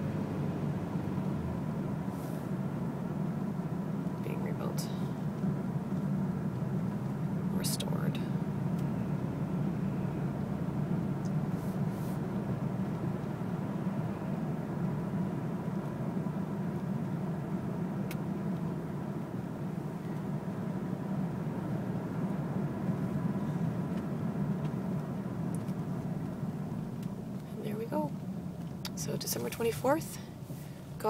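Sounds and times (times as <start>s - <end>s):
car road and engine rumble: 0.0s - 31.0s.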